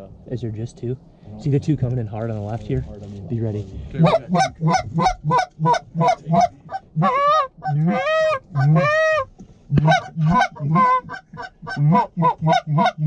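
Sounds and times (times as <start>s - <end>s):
goose calls honking: 4.0s - 13.0s.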